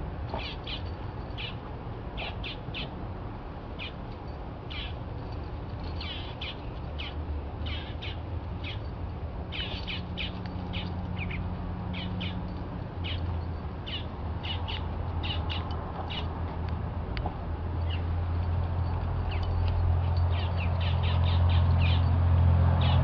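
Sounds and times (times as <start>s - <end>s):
low steady hum: 0.0s - 23.0s
small birds chirping: 0.3s - 1.6s, 2.2s - 3.0s, 3.8s - 4.0s, 4.7s - 5.0s, 5.8s - 8.9s, 9.5s - 16.4s, 17.8s - 18.2s, 18.8s - 22.1s.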